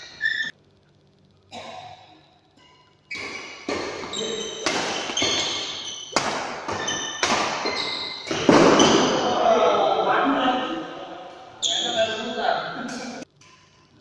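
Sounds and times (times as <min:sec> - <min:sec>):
shoe squeaks: 0:00.0 - 0:00.5, 0:02.6 - 0:09.3, 0:11.6 - 0:12.4
rackets hitting shuttlecock: 0:02.6 - 0:09.2.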